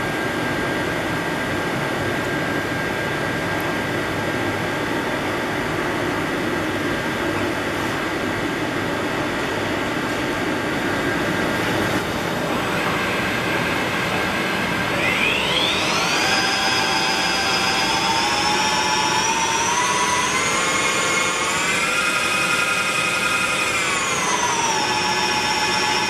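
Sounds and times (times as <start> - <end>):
milling machine hum: 9.0 - 26.0
spindle whine rising in pitch: 10.6 - 26.0.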